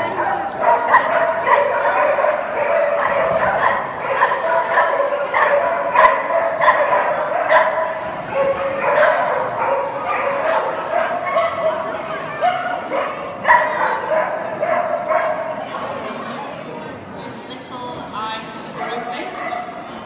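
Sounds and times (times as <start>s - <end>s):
dog yipping and barking: 0.2s - 15.4s.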